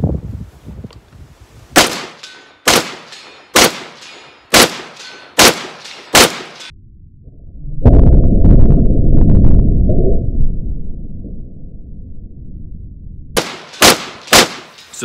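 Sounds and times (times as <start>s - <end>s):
rifle shots: 1.8s - 6.7s, 13.4s - 15.0s.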